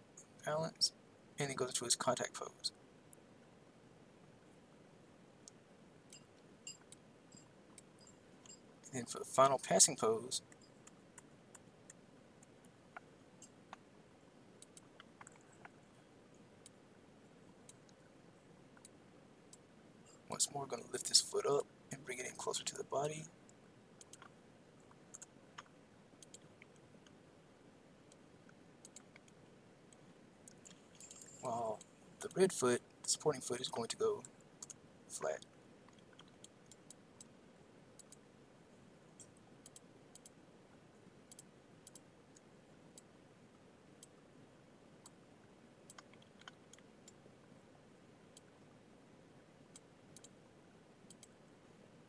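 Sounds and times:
quiet room hiss: 0:00.0 - 0:52.0
mouse and keyboard clicks: 0:24.0 - 0:24.3, 0:25.1 - 0:27.2, 0:28.8 - 0:29.4, 0:41.3 - 0:42.1, 0:45.9 - 0:47.2, 0:51.1 - 0:51.4.

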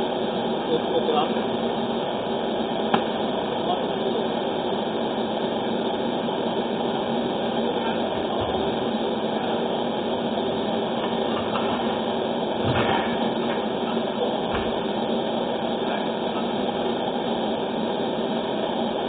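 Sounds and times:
pot boiling: 0:00.0 - 0:19.0.

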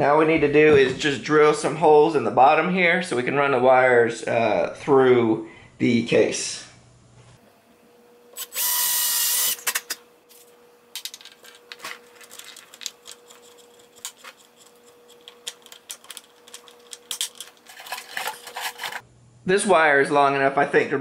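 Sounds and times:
cordless drill boring a hole: 0:08.4 - 0:09.7.

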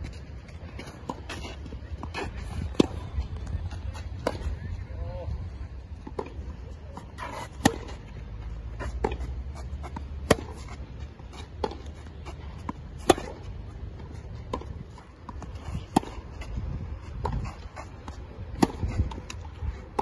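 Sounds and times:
tennis racket hitting ball: 0:07.1 - 0:08.0, 0:08.8 - 0:10.8, 0:11.4 - 0:16.4, 0:17.2 - 0:20.0.

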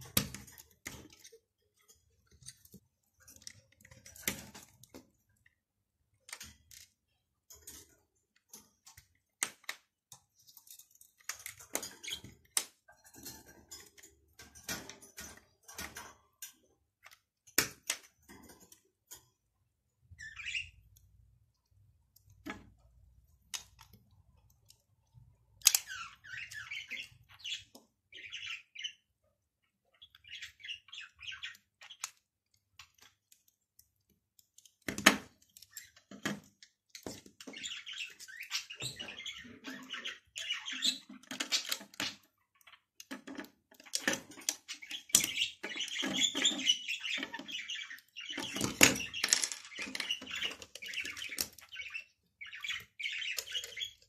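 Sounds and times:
bird-like chirping: 0:19.8 - 0:22.9, 0:23.5 - 0:33.9, 0:36.9 - 0:43.0, 0:43.8 - 0:54.0
plastic bricks clicking and knocking: 0:48.7 - 0:50.1.

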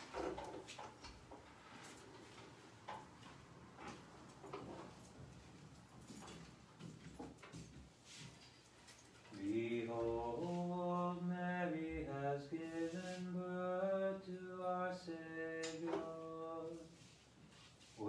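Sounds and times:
men singing a chant-like hymn: 0:09.4 - 0:16.9.

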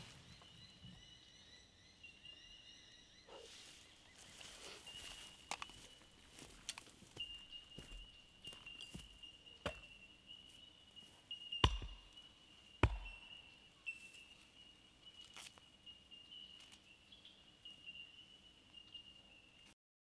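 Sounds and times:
sharp knocks: 0:11.6 - 0:12.1, 0:12.8 - 0:13.2.

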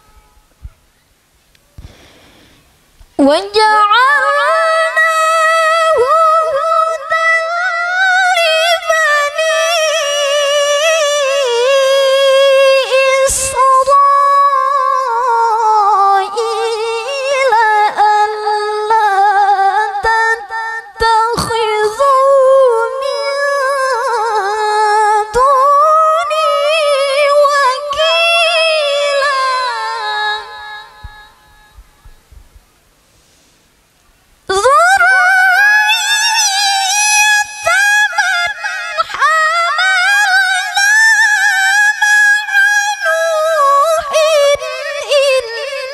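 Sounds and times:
short breaths: 0:01.7 - 0:02.9, 0:33.0 - 0:33.9
woman chanting recitation: 0:03.2 - 0:31.7, 0:34.5 - 0:45.9.

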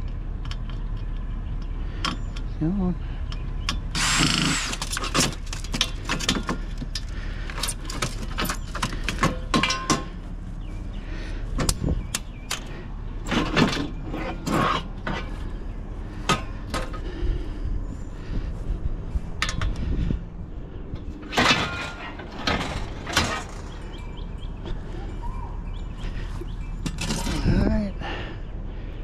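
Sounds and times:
steady low hum: 0:00.0 - 0:29.0
scrap metal clanking: 0:04.0 - 0:10.3, 0:12.6 - 0:15.6, 0:21.0 - 0:25.1, 0:26.0 - 0:27.6.

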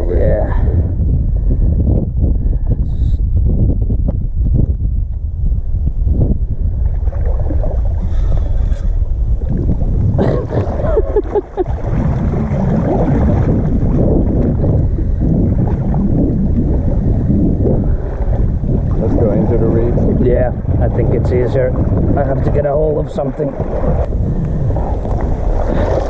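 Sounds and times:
wind buffeting microphone: 0:00.0 - 0:26.0
water sloshing and splashing: 0:06.6 - 0:26.0.

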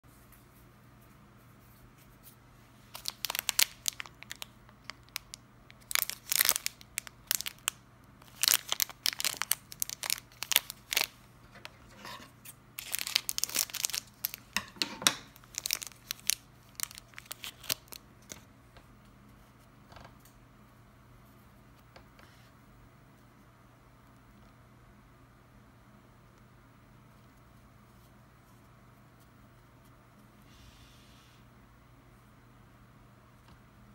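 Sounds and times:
plastic wrapper crinkling and tearing: 0:02.9 - 0:11.7, 0:12.8 - 0:18.4.

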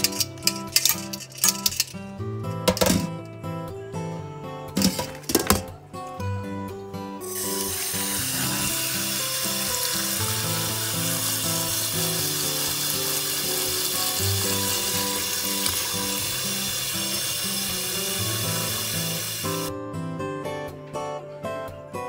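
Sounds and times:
background music: 0:00.0 - 0:22.0
tap water running into a pot: 0:07.3 - 0:19.7.

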